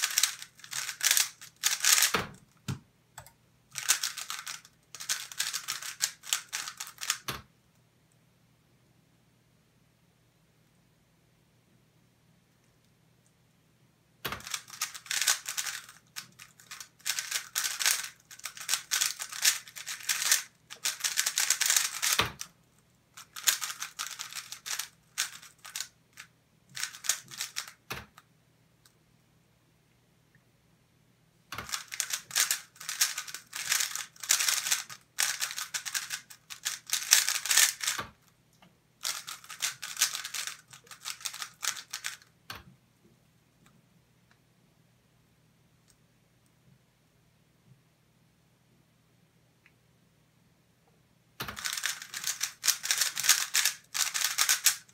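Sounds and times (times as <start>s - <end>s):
puzzle cube plastic clicking: 0.0s - 7.5s, 14.2s - 22.6s, 23.2s - 28.2s, 31.6s - 38.3s, 39.0s - 42.7s, 51.4s - 54.9s.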